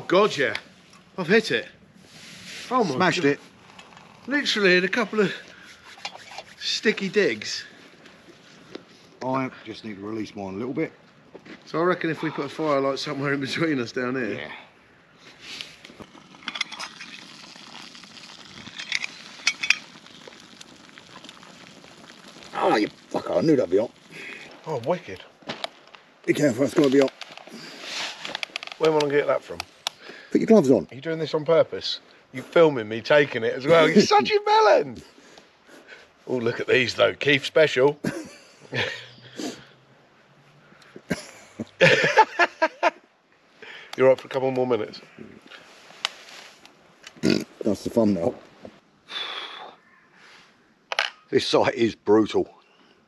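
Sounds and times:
water boiling in a pot: 15.7s - 25.3s
man laughing heartily: 38.1s - 39.1s, 41.1s - 43.0s.

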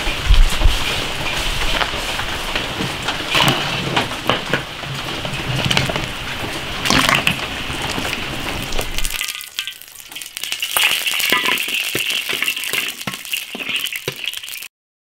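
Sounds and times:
water boiling hard: 0.0s - 14.7s
oil sizzling in a wok: 8.7s - 14.7s.

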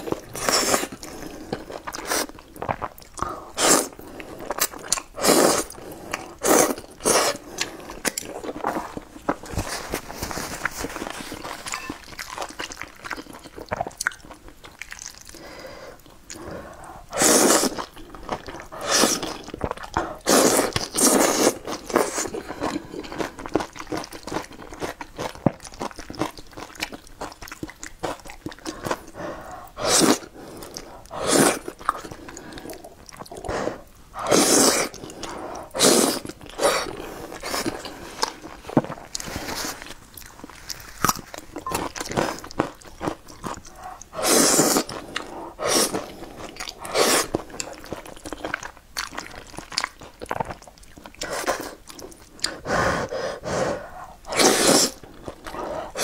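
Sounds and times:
noodle slurping: 0.0s - 12.6s, 17.1s - 22.8s, 28.5s - 41.0s, 43.4s - 48.1s, 49.1s - 56.0s
wet chewing: 0.0s - 15.4s, 16.0s - 56.0s.

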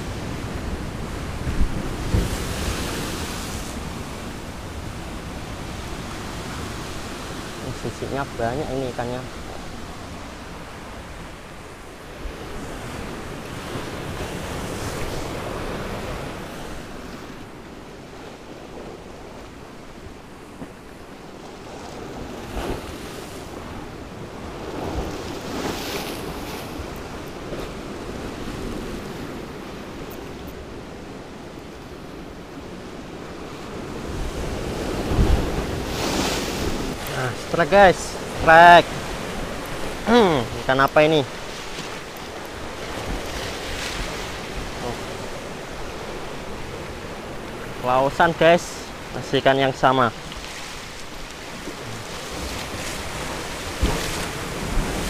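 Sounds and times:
wind buffeting microphone: 0.0s - 19.4s
sea waves washing onto shore: 0.0s - 55.0s.

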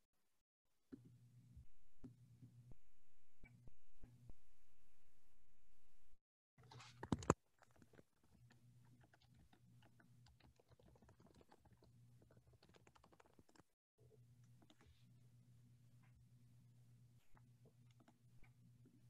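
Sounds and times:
low steady hum: 0.9s - 7.3s
keyboard typing: 6.8s - 13.7s.

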